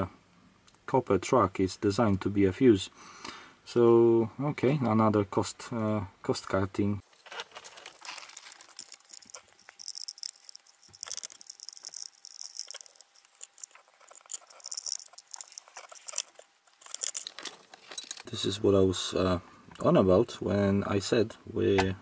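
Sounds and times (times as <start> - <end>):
light clicks and rattles: 7.1 - 18.3
screwdriver scraping: 7.1 - 18.3.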